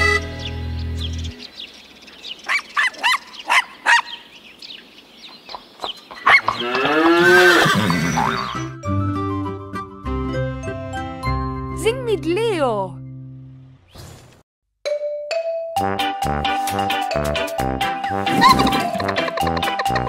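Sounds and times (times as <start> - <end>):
cartoon cow moo: 6.4 - 7.6.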